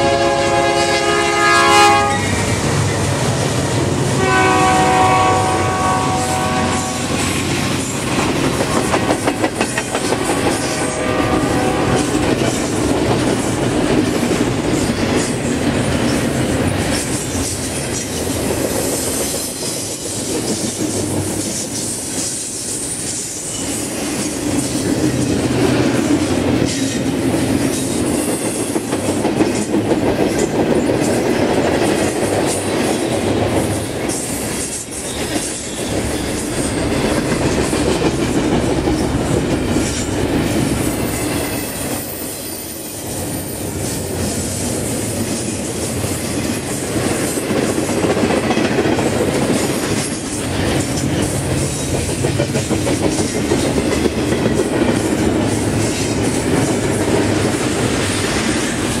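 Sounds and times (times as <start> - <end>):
steel wheels rumbling on rail: 0.0 - 59.0
clickety-clack over rail joints: 6.8 - 42.1, 43.0 - 59.0.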